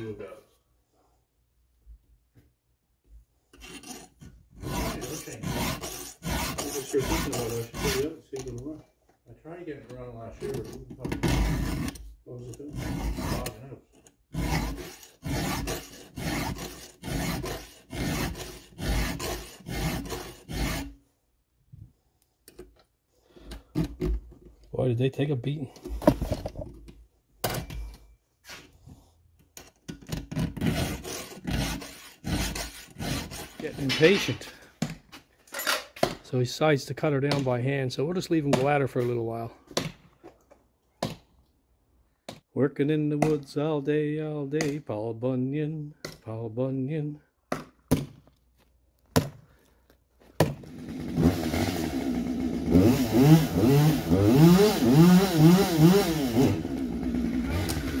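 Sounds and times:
file rasping across saw chain: 0:03.5 - 0:08.2, 0:11.2 - 0:21.0, 0:30.6 - 0:34.5.

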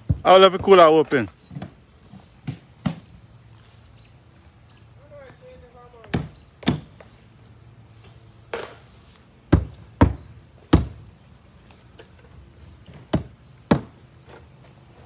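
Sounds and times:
construction knocks and thunks: 0:00.0 - 0:03.1, 0:06.0 - 0:07.2, 0:09.5 - 0:11.1, 0:11.9 - 0:14.7.

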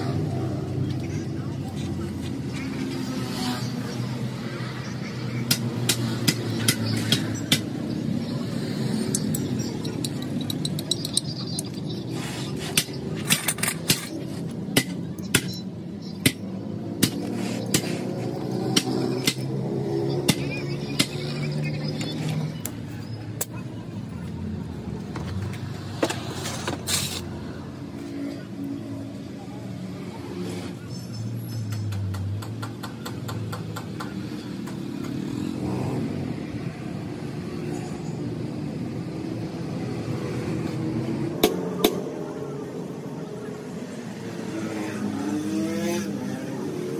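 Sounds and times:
metal tools tapping on metal: 0:09.1 - 0:11.8, 0:12.7 - 0:14.2.

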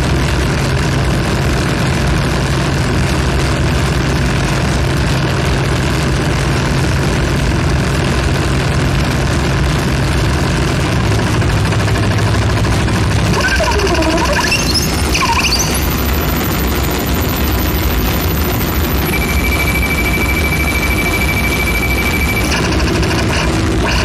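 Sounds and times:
mechanical drone: 0:10.2 - 0:24.0.

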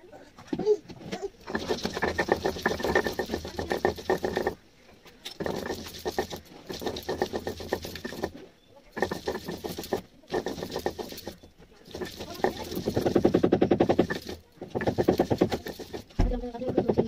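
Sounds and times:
stone roller grinding on stone slab: 0:01.3 - 0:17.0.

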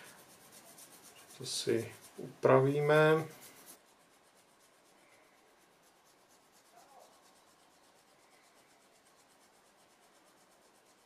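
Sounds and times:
hand file rubbing on plastic: 0:00.0 - 0:11.0.

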